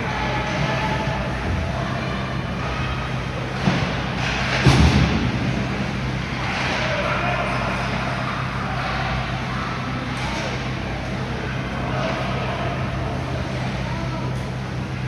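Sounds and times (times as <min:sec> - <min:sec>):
steady low hum: 0:00.0 - 0:15.0
hockey sticks skates and puck on ice: 0:03.6 - 0:05.1, 0:05.7 - 0:08.0.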